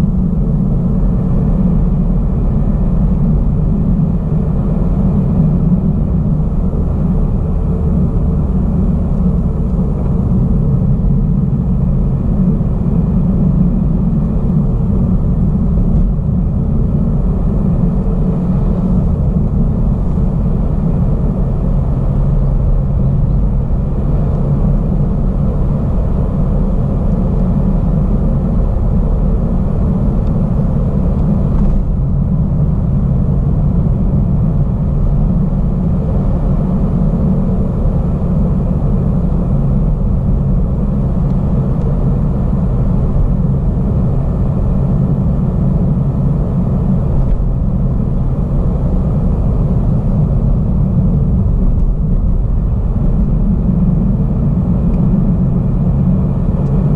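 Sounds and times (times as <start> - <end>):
car interior road rumble: 0.0 - 56.9.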